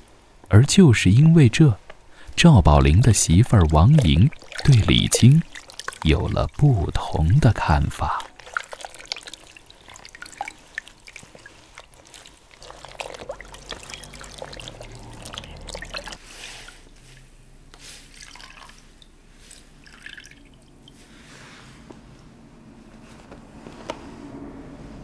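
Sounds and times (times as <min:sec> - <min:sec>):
water splashing in plastic basin: 0:02.7 - 0:17.0, 0:18.0 - 0:21.0.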